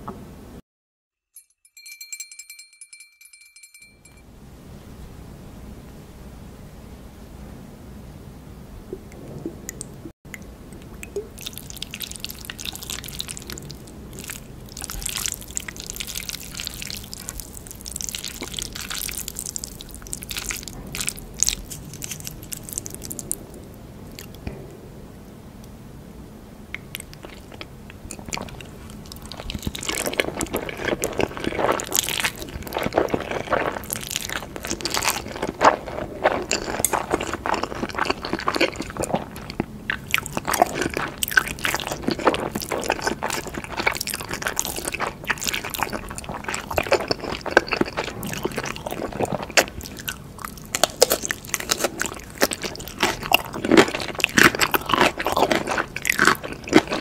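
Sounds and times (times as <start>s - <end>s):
wet chewing and crunching: 10.9s - 24.6s, 26.8s - 57.0s.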